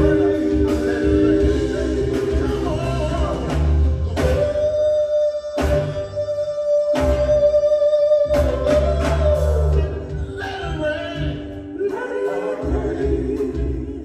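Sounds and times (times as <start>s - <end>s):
backing band playing ballad: 0.0s - 14.0s
soul vocal group singing: 0.0s - 14.0s.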